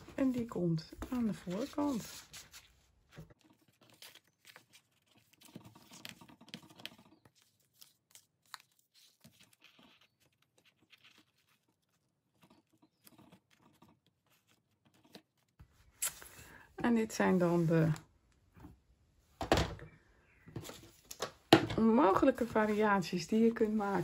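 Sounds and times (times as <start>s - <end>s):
paper rustling: 0.0s - 16.4s.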